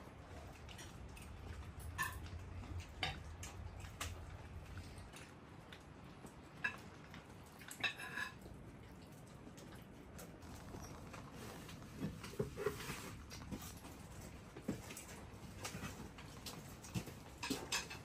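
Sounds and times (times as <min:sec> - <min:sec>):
faint low hum: 0:00.0 - 0:18.0
forks clinking against plates: 0:01.5 - 0:03.3.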